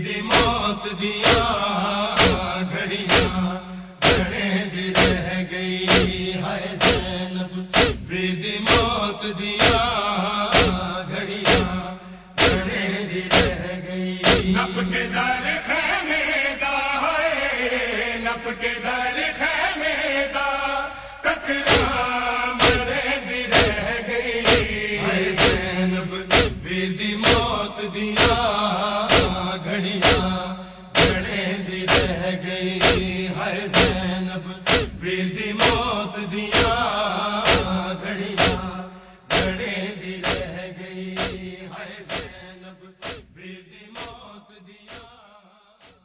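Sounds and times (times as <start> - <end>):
male chorus chanting: 0.0 - 46.0
chest-beating strikes: 0.3 - 8.1, 8.7 - 9.9, 10.5 - 14.7, 21.7 - 22.0, 22.6 - 24.8, 25.4 - 27.6, 28.2 - 42.4, 43.0 - 43.3
hands striking chests: 2.2 - 2.5, 3.1 - 3.4, 4.0 - 4.4, 5.0 - 5.3, 5.9 - 7.2, 7.8 - 8.0, 8.7 - 9.0, 10.5 - 10.8, 11.5 - 11.8, 12.4 - 13.6, 14.2 - 14.6, 21.7 - 22.0, 22.6 - 22.9, 23.5 - 23.8, 24.5 - 24.8, 25.4 - 25.7, 26.3 - 26.6, 27.2 - 27.6, 28.2 - 28.5, 29.1 - 29.4, 30.0 - 30.4, 31.0 - 31.3, 31.9 - 32.2, 32.8 - 33.2, 33.8 - 34.1, 34.7 - 35.0, 35.6 - 35.9, 36.5 - 36.8, 37.5 - 37.8, 38.4 - 38.7, 39.3 - 39.6, 40.2 - 40.6, 41.2 - 41.4, 42.1 - 42.4.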